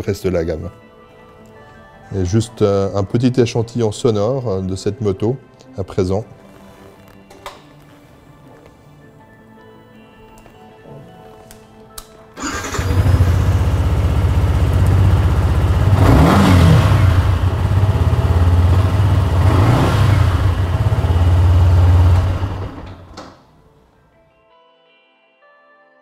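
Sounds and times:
motorcycle engine idling and revving: 12.4s - 23.2s.

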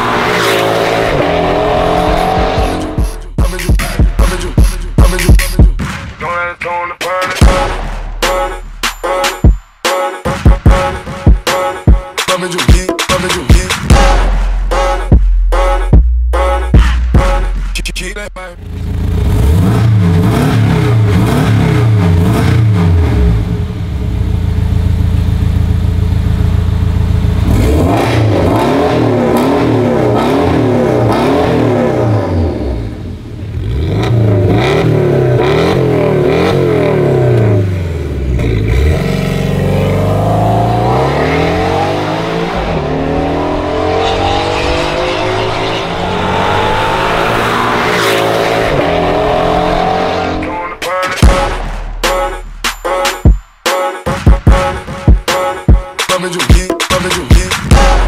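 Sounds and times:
car accelerating through gears: 0.0s - 3.0s, 27.3s - 50.6s
sports car engine revving: 0.0s - 5.8s, 18.4s - 52.6s.

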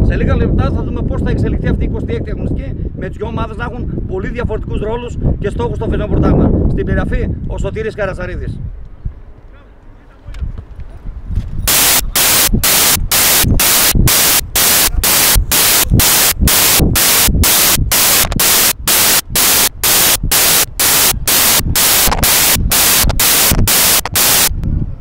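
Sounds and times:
pulsing static hiss bursts: 11.7s - 24.5s.

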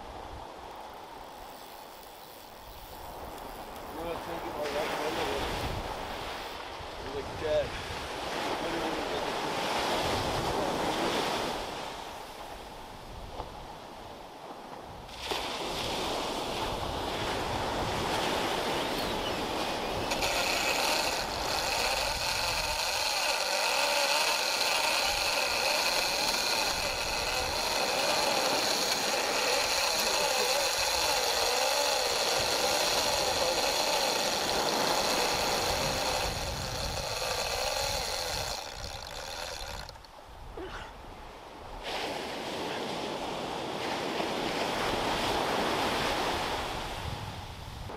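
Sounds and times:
fishing reel whining: 0.6s - 6.6s, 17.4s - 40.2s.

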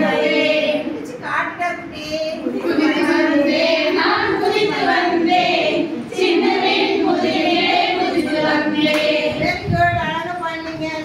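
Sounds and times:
women singing in chorus: 0.0s - 1.2s, 2.5s - 9.8s.

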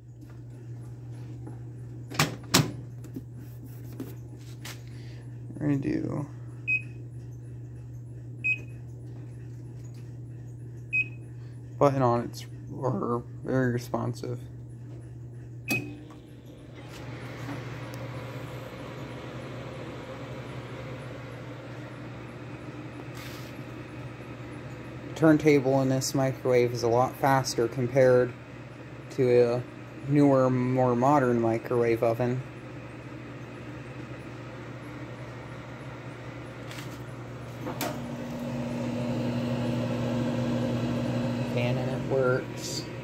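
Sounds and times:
microwave oven humming: 0.0s - 43.0s
microwave click: 2.1s - 2.8s, 15.6s - 22.2s, 37.6s - 41.5s.

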